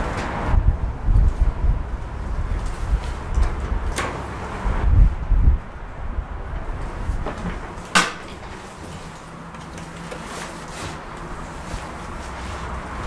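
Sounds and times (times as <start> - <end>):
elevator clunk: 7.4 - 8.8.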